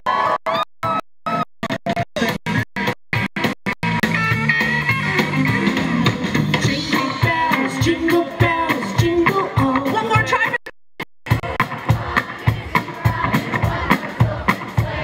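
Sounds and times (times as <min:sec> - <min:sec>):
drum kit: 0:01.3 - 0:10.6, 0:11.3 - 0:15.0
electric guitar: 0:02.2 - 0:10.0
person singing: 0:06.6 - 0:10.6.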